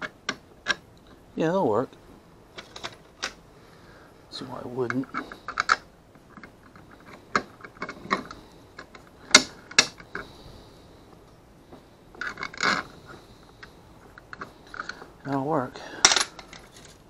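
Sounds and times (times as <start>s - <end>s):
metal hardware clicking: 4.9s - 10.2s, 13.6s - 17.0s.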